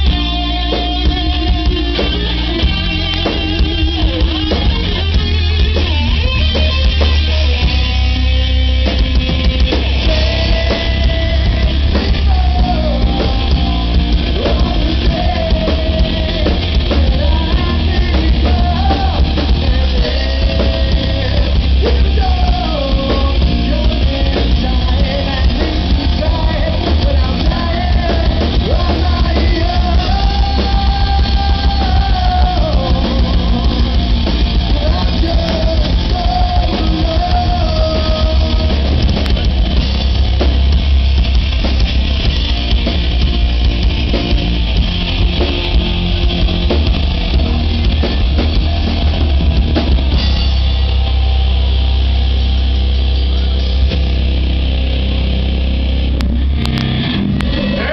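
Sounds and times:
metal band playing: 0.0 - 57.9
man singing long held lines: 10.0 - 39.0, 57.4 - 57.9.

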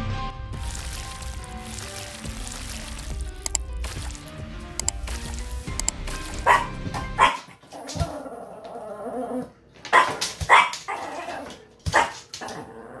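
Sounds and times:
small dog barking: 6.4 - 7.5, 9.9 - 12.3.

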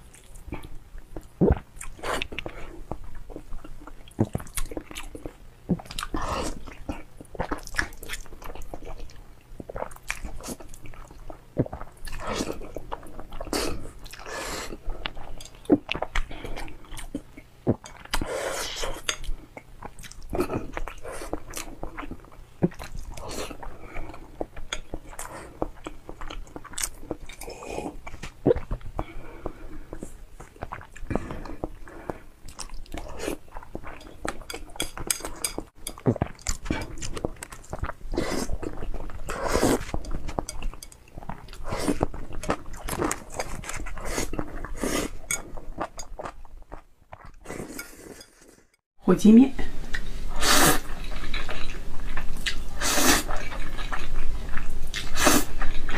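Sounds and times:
noodle slurps: 38.1 - 39.9, 50.3 - 51.5
wet chewing and lip smacks: 50.9 - 55.9.

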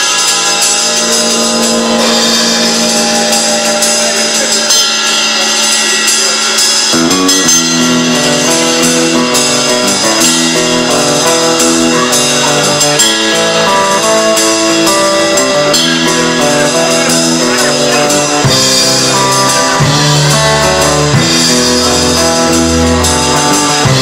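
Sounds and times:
drum kit: 0.0 - 24.0
hollow-body electric guitar: 0.0 - 24.0
upright double bass: 0.8 - 5.6, 6.9 - 24.0.

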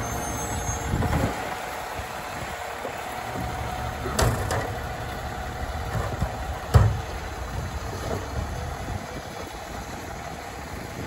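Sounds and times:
garbage truck engine running: 0.0 - 11.0
loader arm and cart knocking: 2.8 - 8.8.

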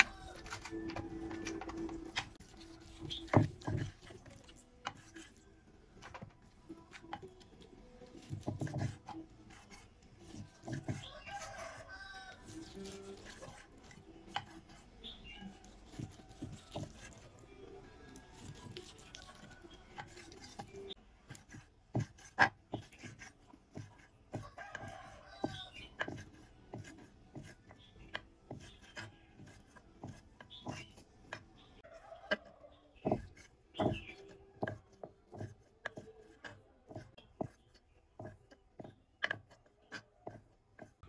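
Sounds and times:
food preparation knocks and clicks: 32.3 - 41.0.

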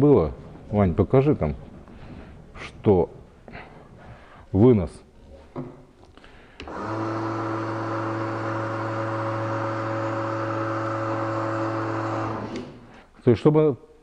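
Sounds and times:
electric motor humming: 6.7 - 13.0.

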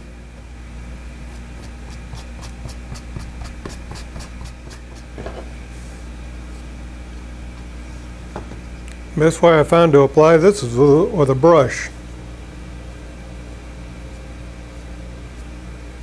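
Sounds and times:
low shop hum: 0.0 - 16.0
filler scraped on cardboard: 1.3 - 5.1.

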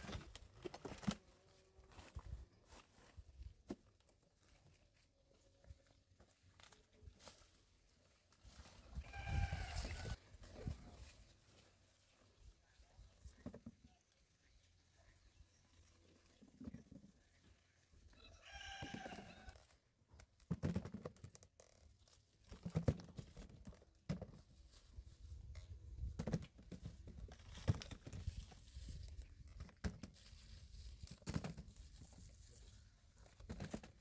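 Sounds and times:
dry leaves rustling: 6.4 - 12.5.

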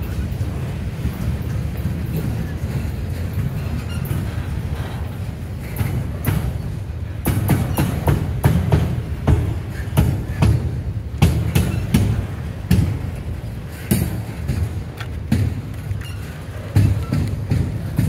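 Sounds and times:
freight train rumbling: 0.0 - 18.0
wheels clicking on rails: 0.0 - 18.0.

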